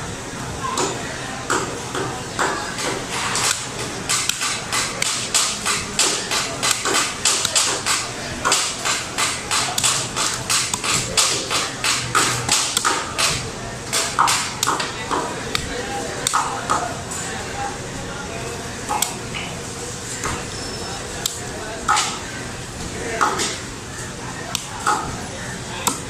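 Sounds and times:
knife chopping on wooden block: 2.4s - 14.9s.

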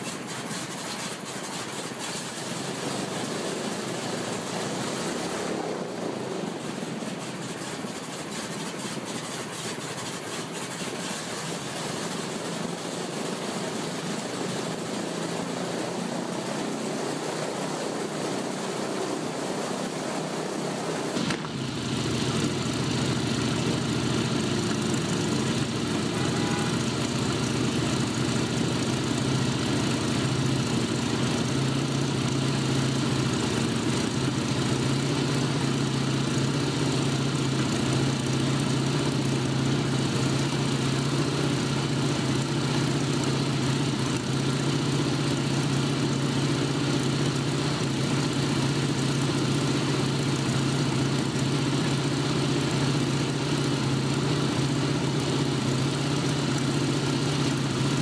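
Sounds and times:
aircraft engine running: 0.0s - 58.0s
radial engine idling: 21.1s - 58.0s.

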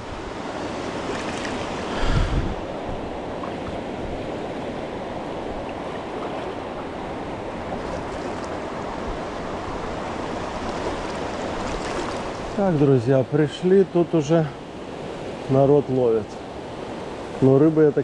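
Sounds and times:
river water rushing: 0.0s - 18.0s
wind buffet on microphone: 1.4s - 6.5s.

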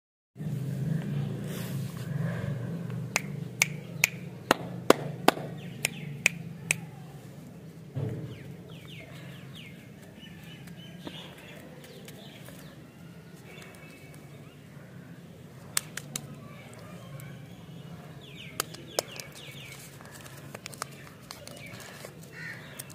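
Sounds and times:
sharp taps or clicks: 3.1s - 6.8s.

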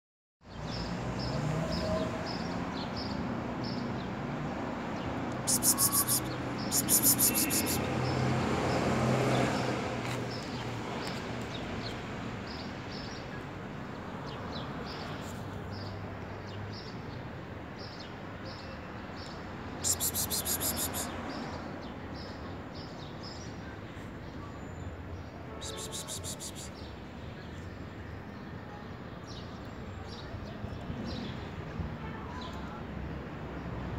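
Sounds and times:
faint chirping: 5.5s - 7.8s, 19.8s - 21.1s, 25.6s - 26.8s
person hissing to call cat: 5.5s - 7.8s, 19.8s - 21.1s, 25.6s - 26.7s.

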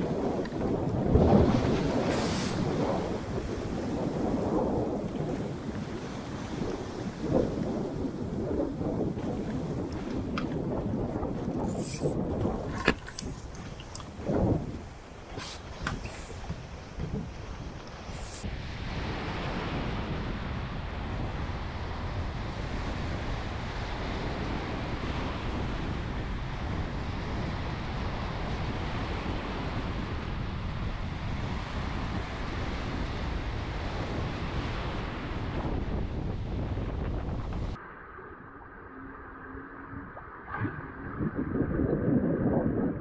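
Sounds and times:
waves rushing: 0.0s - 21.0s
wind buffeting microphone: 0.0s - 37.8s, 39.8s - 43.0s.

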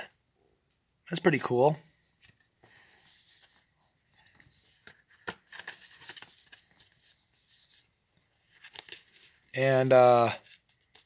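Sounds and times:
light rustling and rubbing: 2.0s - 9.5s.

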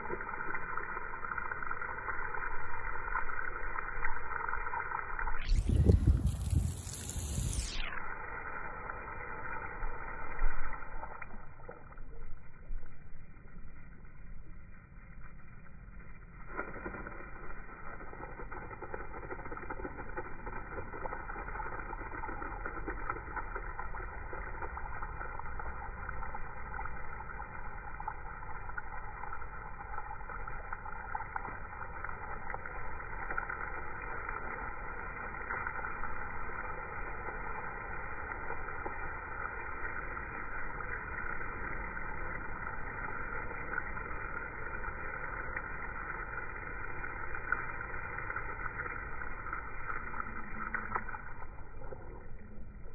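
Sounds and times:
water spray hissing: 5.4s - 12.2s.

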